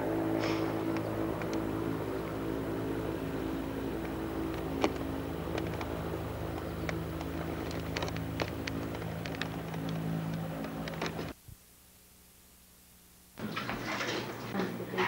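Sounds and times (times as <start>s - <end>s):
propeller engines droning: 0.0s - 11.4s.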